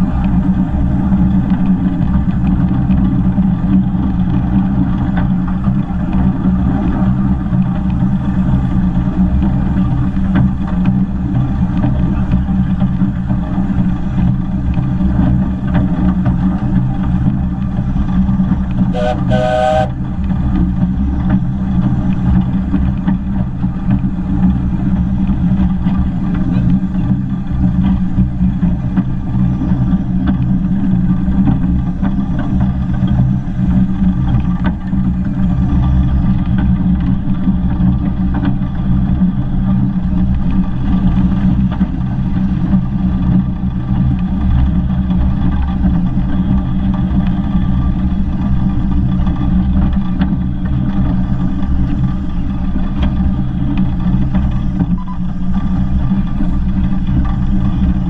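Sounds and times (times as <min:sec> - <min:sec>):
steam locomotive rumbling: 0:00.0 - 0:58.0
steam locomotive whistle: 0:18.9 - 0:20.0.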